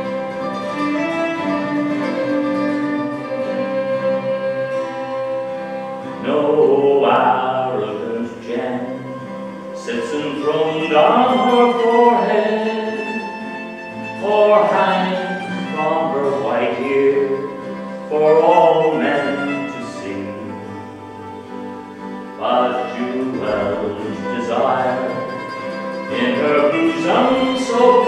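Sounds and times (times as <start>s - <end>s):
acoustic guitar: 0.0s - 28.0s
fiddle: 0.0s - 28.0s
mandolin: 0.0s - 28.0s
man singing folk ballad: 6.1s - 21.1s, 22.2s - 28.0s.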